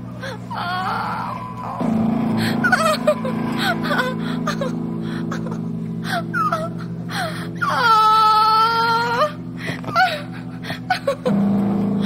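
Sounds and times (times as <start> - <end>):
steady low hum: 0.0 - 12.0
whimpering squeaks: 0.5 - 4.8
woman wailing: 0.5 - 11.4.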